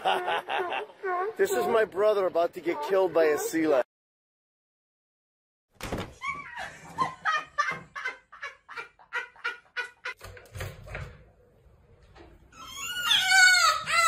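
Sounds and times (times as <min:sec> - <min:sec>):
person laughing: 0:00.0 - 0:01.3.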